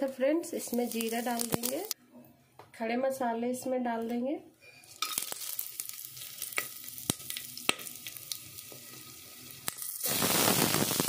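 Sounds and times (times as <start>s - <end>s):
spices sizzling in hot oil: 0.4s - 2.0s, 4.8s - 11.0s
sharp crackles: 0.6s - 2.0s, 9.6s - 11.0s.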